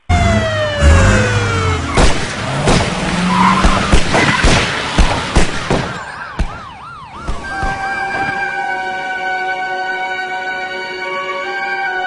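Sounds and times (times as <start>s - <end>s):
emergency vehicle siren: 0.0s - 2.3s, 5.6s - 12.0s
road vehicle noise: 0.0s - 12.0s.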